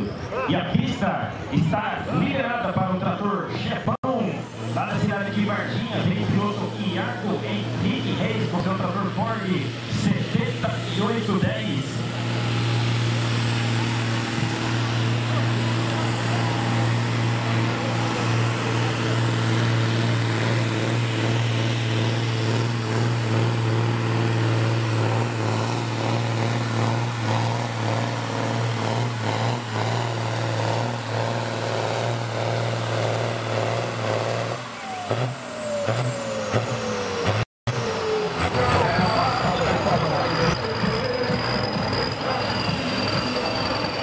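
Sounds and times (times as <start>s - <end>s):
tractor diesel engine at high revs: 0.0s - 44.0s.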